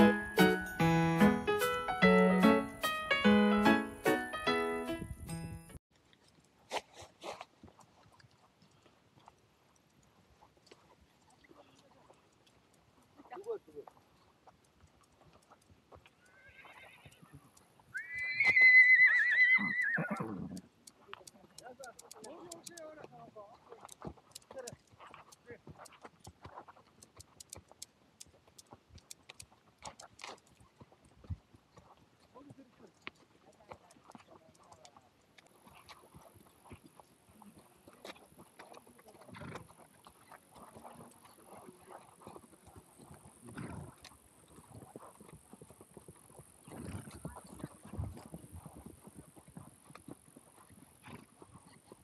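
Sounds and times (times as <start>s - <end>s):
hooves clip-clopping: 0.0s - 52.0s
horse whinnying: 16.2s - 17.2s, 17.9s - 20.6s
grasshopper wings crackling: 20.5s - 30.4s.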